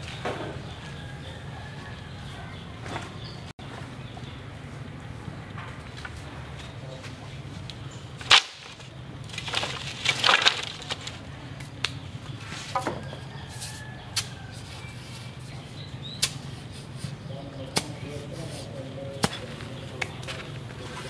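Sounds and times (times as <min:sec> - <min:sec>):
bamboo poles knocking and clattering: 0:00.0 - 0:01.0, 0:05.5 - 0:15.6, 0:19.1 - 0:21.0
loud sharp crack: 0:08.2 - 0:08.9.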